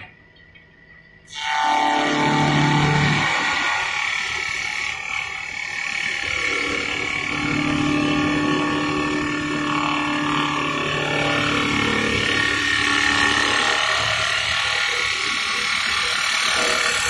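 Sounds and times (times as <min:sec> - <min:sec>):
motor hum: 0:06.0 - 0:17.0.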